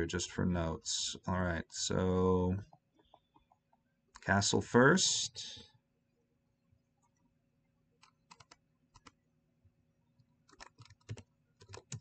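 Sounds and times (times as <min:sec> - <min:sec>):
typing on computer keyboard: 0:08.0 - 0:09.2, 0:10.5 - 0:12.0.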